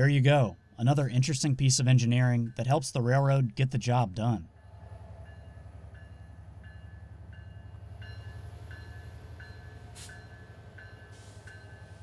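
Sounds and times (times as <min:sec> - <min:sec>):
locomotive bell ringing: 0:00.0 - 0:12.0
short hiss: 0:10.0 - 0:10.2.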